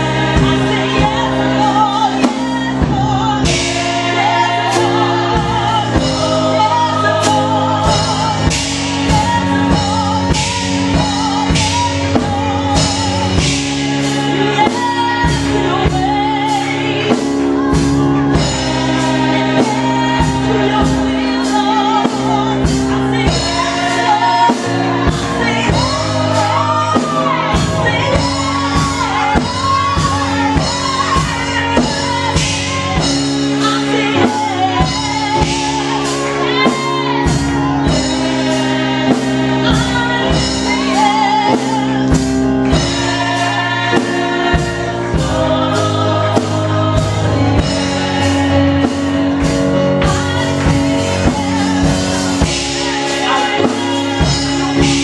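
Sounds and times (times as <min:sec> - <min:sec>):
group singing gospel: 0:00.0 - 0:55.0
keyboard accompaniment: 0:00.0 - 0:55.0
steady beat: 0:00.0 - 0:55.0.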